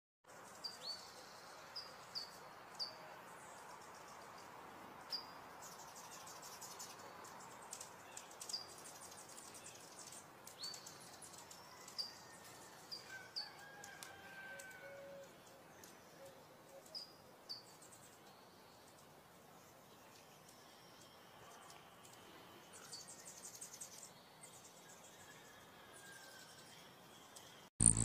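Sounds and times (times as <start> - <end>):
hummingbird chattering: 27.8 - 28.0
hummingbird chip notes: 27.8 - 28.0.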